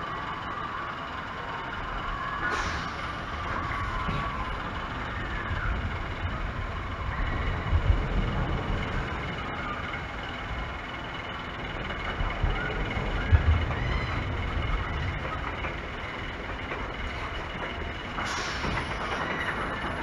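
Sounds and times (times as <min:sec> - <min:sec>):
faint whistling chirps: 0:02.0 - 0:07.7
boat rumble with hiss: 0:02.4 - 0:20.0.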